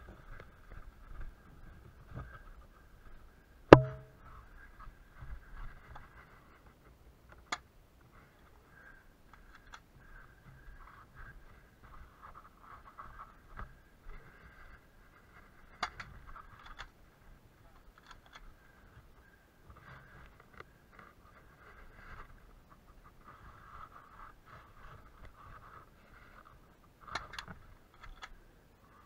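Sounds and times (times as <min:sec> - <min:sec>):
faint clicks: 0:07.3 - 0:11.1, 0:17.7 - 0:21.8, 0:25.2 - 0:28.4.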